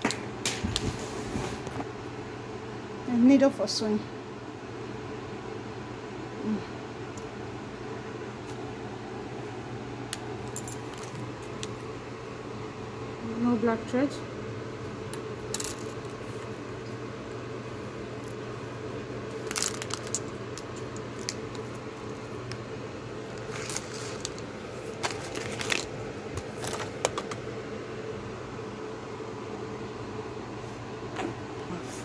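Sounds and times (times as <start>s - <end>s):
low room hum: 0.0s - 32.0s
packaging rustling and crinkling: 23.4s - 27.3s.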